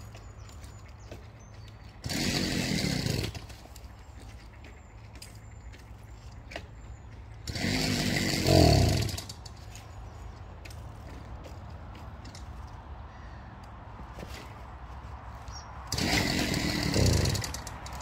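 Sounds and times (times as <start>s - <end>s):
small engine revving and dying: 2.0s - 3.5s, 7.4s - 9.4s, 15.9s - 18.0s.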